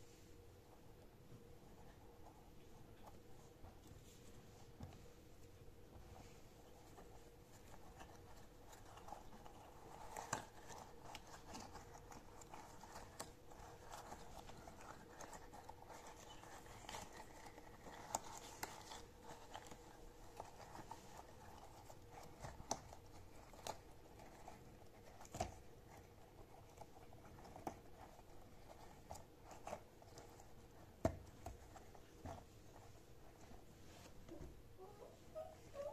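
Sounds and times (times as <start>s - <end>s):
faint steady hum: 0.0s - 35.9s
soft rubbery rustling and squeezing: 0.0s - 35.9s.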